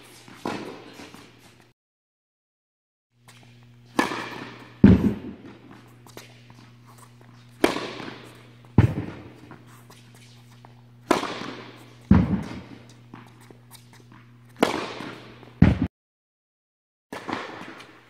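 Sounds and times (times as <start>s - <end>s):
tennis balls struck by rackets: 0.3s - 1.2s, 3.9s - 6.2s, 7.5s - 9.7s, 11.0s - 13.9s, 14.5s - 15.9s, 17.2s - 18.0s.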